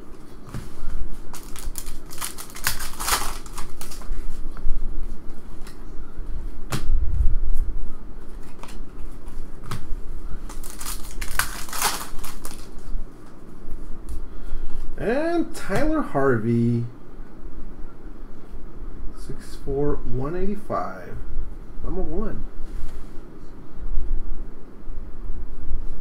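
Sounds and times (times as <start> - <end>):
trading cards flipped by hand: 0.4 - 5.8, 8.2 - 12.9
foil wrapper crinkling and tearing: 1.3 - 4.4, 10.5 - 12.9.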